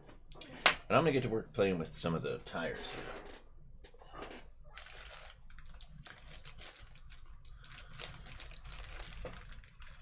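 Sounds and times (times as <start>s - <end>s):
plastic bag of tiny tires crinkling: 4.7s - 10.0s.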